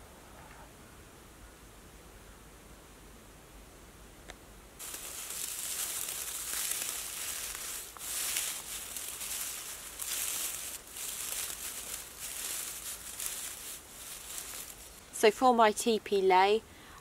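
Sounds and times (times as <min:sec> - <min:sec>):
dry bracken rustling and crackling: 0:04.8 - 0:15.4.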